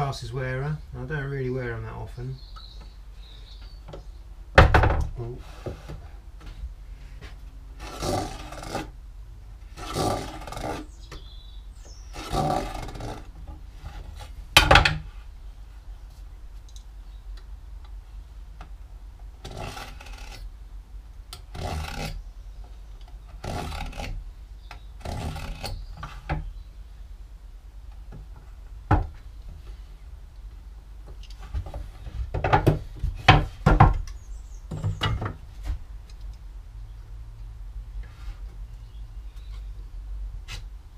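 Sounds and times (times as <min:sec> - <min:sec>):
knife scraping wood: 0:07.8 - 0:08.9, 0:09.7 - 0:11.0, 0:12.1 - 0:14.4, 0:19.4 - 0:20.5, 0:21.4 - 0:22.2, 0:23.2 - 0:24.2, 0:25.0 - 0:26.3.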